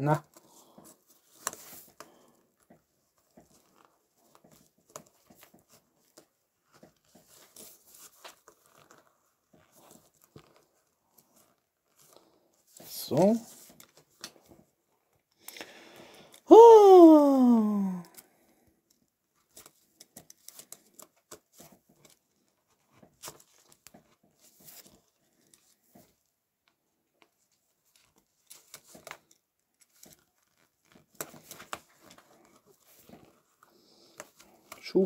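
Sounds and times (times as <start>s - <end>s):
falling voice sound: 16.5s - 18.1s.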